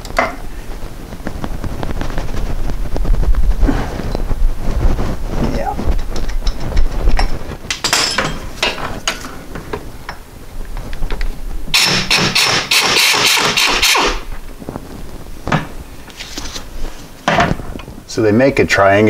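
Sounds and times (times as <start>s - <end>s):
pneumatic wrench hammering: 11.7s - 14.2s.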